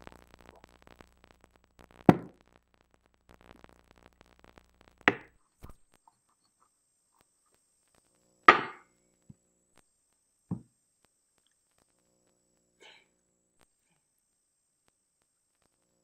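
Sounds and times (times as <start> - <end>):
knocks on a table: 2.1 - 2.3, 8.5 - 8.8.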